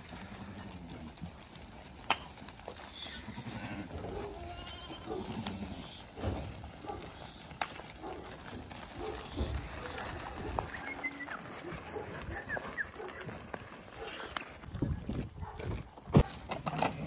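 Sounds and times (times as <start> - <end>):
sheep bleating: 0.0 - 0.9, 2.8 - 6.2.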